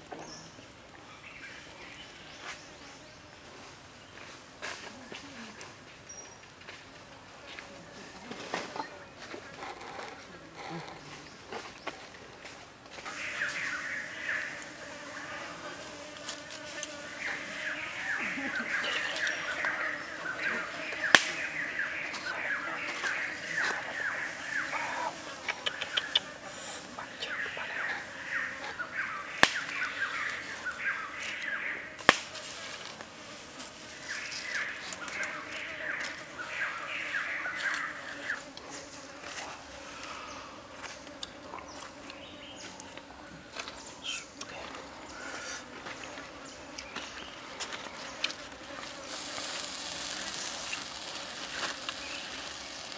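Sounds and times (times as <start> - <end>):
birds chirping: 12.9 - 32.1, 33.8 - 38.8, 39.6 - 52.9
sharp cracks: 21.1 - 21.5, 29.4 - 29.8, 32.0 - 32.4.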